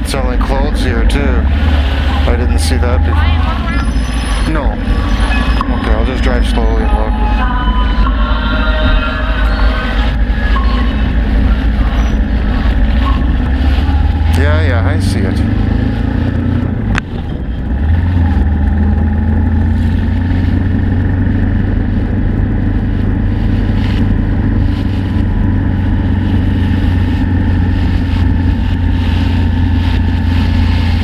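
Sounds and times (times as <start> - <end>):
motorcycle engine running: 0.0 - 31.0
wind and road noise: 0.0 - 31.0.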